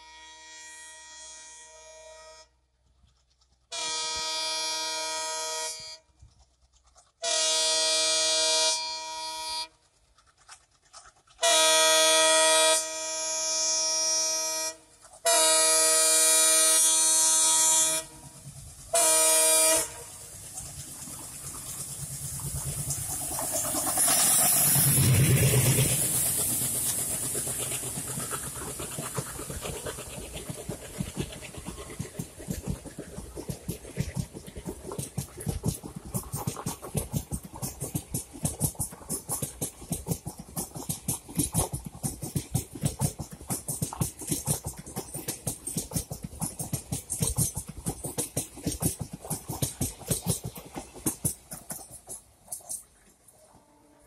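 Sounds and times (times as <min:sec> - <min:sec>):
locomotive horn blasts: 0:00.0 - 0:02.6, 0:03.7 - 0:06.1, 0:07.2 - 0:09.7, 0:11.4 - 0:18.2, 0:18.9 - 0:20.1, 0:53.4 - 0:54.0
train rumbling past: 0:00.0 - 0:54.0.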